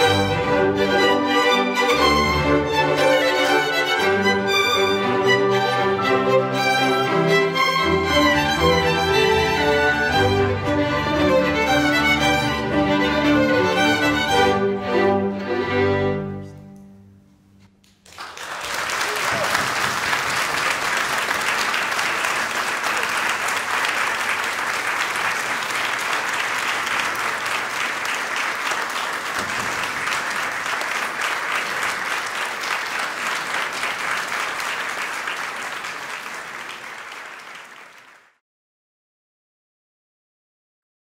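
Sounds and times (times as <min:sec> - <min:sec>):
audience applauding: 0:17.8 - 0:38.4.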